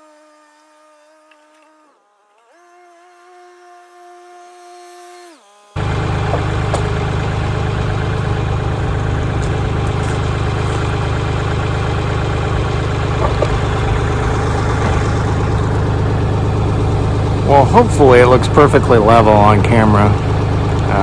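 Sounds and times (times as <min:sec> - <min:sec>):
diesel tractor engine idling: 0:05.8 - 0:21.0.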